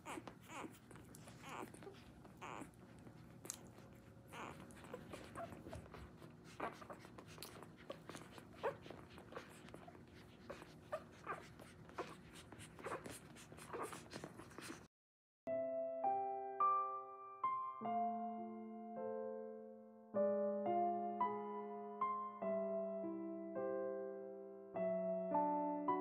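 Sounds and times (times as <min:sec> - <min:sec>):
puppies squeaking and whimpering: 0:00.0 - 0:14.9.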